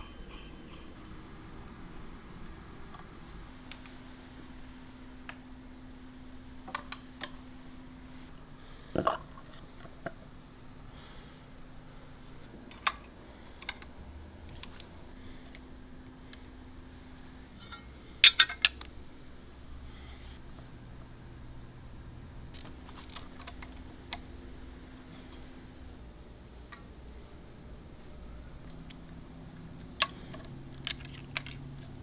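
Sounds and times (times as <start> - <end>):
sharp metal clinks: 0.0 - 1.2
faint steady hum: 0.0 - 32.0.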